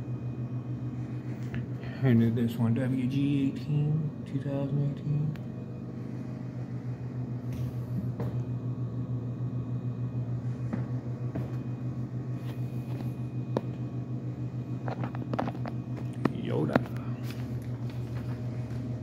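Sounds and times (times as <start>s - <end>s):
pulsing mechanical hum: 0.0s - 19.0s.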